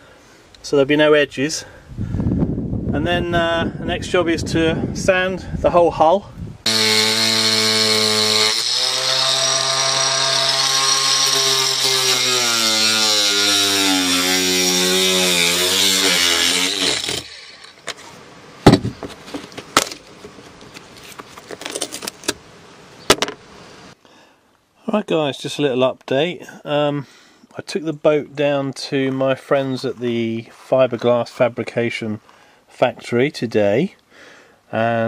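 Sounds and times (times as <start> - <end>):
angle grinder grinding: 6.6 - 18.2
sharp knocks and scrapes: 17.8 - 22.4.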